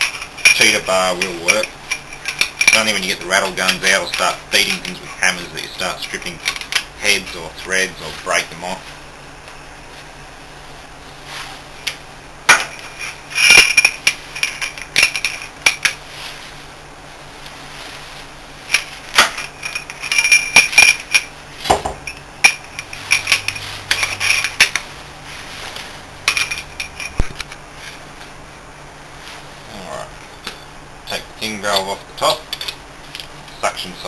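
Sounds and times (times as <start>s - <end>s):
spanner clinking on steel bolts: 0.0s - 5.0s, 18.7s - 21.3s, 30.4s - 33.3s.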